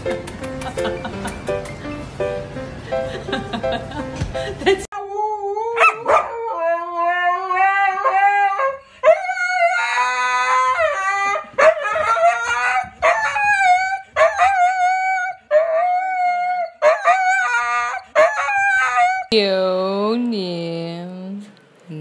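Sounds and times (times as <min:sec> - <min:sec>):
husky howling: 0:05.0 - 0:19.3.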